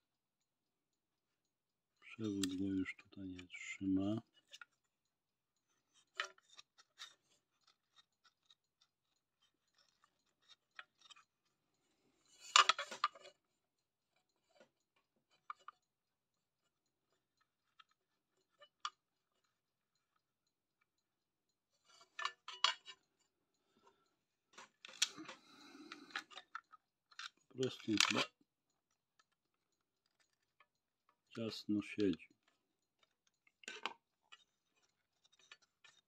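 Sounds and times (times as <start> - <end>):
clicks and scrapes on metal case: 12.3 - 13.4, 21.9 - 23.0, 33.0 - 36.0.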